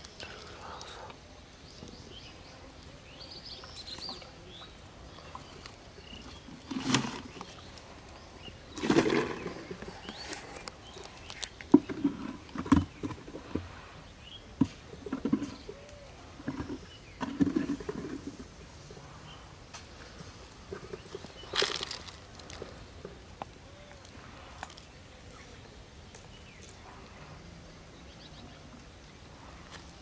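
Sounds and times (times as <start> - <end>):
plastic bucket knocks and scrapes: 6.6 - 7.6, 8.7 - 10.2, 11.7 - 13.8, 14.6 - 15.7, 16.4 - 18.5
rustling: 19.8 - 23.2.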